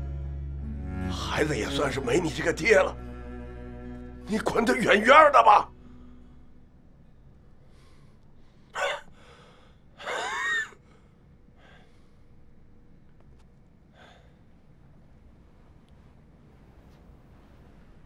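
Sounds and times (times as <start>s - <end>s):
man gasping breaths: 7.7s - 9.9s, 10.8s - 12.3s, 13.9s - 14.4s.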